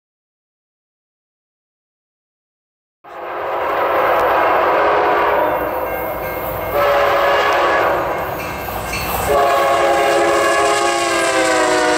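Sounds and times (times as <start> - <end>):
locomotive air horn blasts: 3.1 - 8.3, 9.2 - 11.9.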